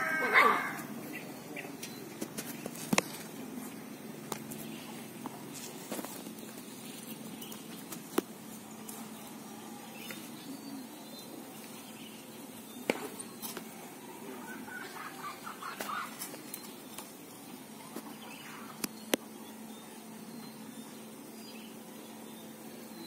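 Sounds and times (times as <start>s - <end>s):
steady low hum: 0.0s - 23.0s
chickens clucking: 13.4s - 17.1s.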